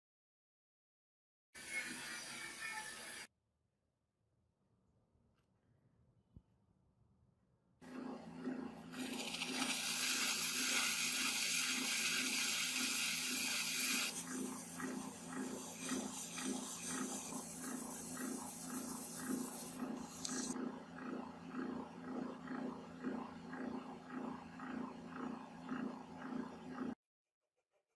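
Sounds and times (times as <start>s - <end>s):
metal lathe humming and throbbing: 7.8s - 27.0s
sandpaper hiss: 9.0s - 20.6s.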